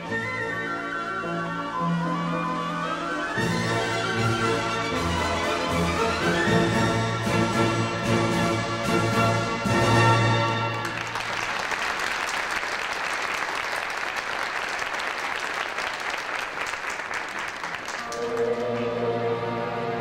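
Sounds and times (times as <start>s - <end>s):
orchestral music: 0.0s - 11.3s, 17.9s - 20.0s
audience applauding: 10.6s - 19.1s.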